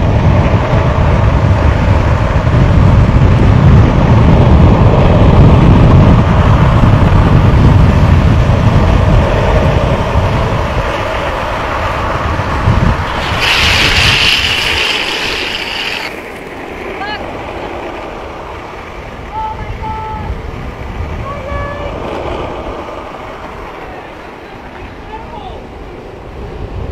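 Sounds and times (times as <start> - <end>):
skateboard wheels rolling on asphalt: 0.0 - 26.9
wind buffeting microphone: 0.0 - 26.9
wheels screeching in a slide: 10.8 - 18.1.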